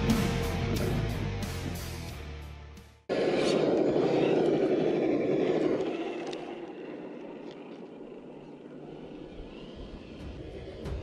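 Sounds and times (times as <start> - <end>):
rc car electric motor: 3.1 - 11.0.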